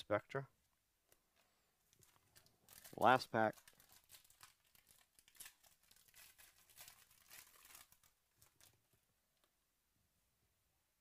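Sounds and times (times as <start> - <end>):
foil wrapper tearing open: 2.0 - 8.8.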